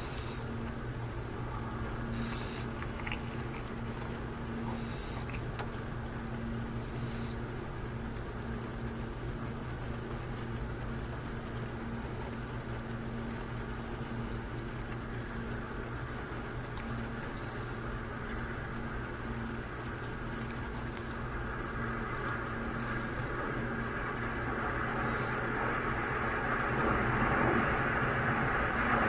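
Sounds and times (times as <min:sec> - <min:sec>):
owl chick calling: 0:00.0 - 0:00.4, 0:02.1 - 0:02.8, 0:04.6 - 0:05.4, 0:06.8 - 0:07.4, 0:17.2 - 0:17.8, 0:22.8 - 0:23.3, 0:25.0 - 0:25.4, 0:28.8 - 0:29.0
steady low hum: 0:00.0 - 0:29.0.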